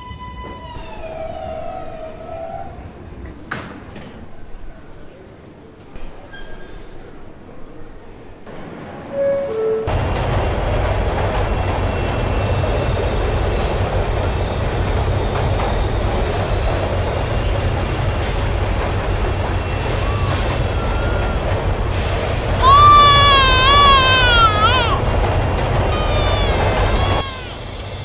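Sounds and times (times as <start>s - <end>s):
subway wheels rumbling on track: 0.0s - 28.0s
high wheel squeal: 17.2s - 25.0s.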